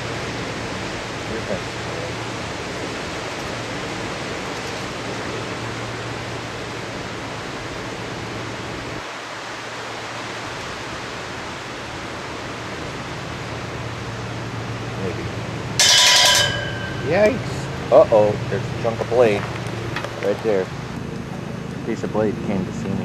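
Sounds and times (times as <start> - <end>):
low hum: 9.8 - 23.0.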